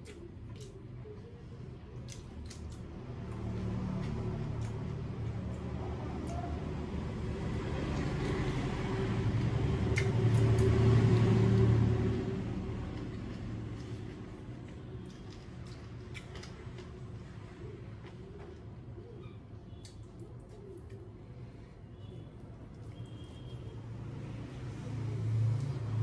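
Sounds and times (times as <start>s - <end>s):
wet clicks of eating: 0.0s - 6.8s, 9.3s - 17.0s, 19.8s - 21.2s.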